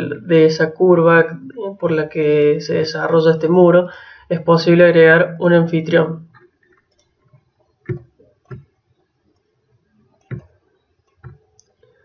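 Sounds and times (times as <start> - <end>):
computer mouse clicks: 6.3 - 12.0.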